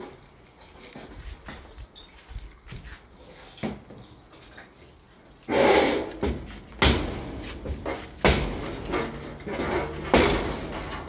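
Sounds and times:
heavy knocks on sheet metal: 6.8 - 11.0.

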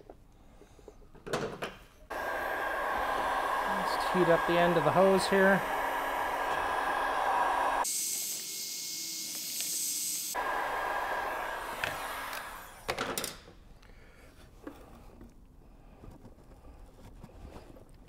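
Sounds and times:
heat gun blowing: 2.1 - 13.0.

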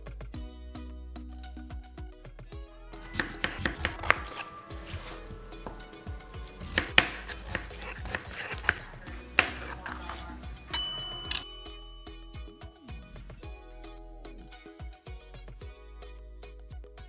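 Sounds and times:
knife chopping on cutting board: 3.0 - 10.7.

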